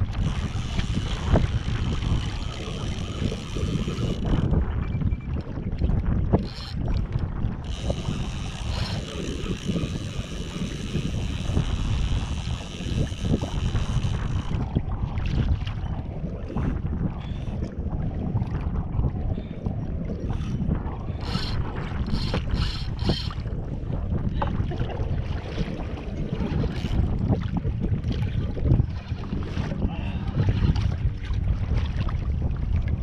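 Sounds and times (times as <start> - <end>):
water against hull: 0.0 - 33.0
wind rumbling on microphone: 0.0 - 33.0.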